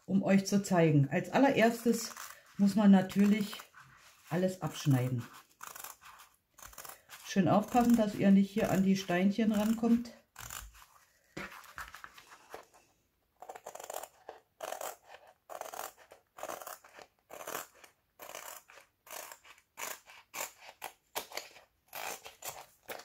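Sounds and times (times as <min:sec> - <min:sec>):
scissors snipping canvas: 0:01.4 - 0:03.8, 0:04.6 - 0:10.8, 0:13.4 - 0:23.0.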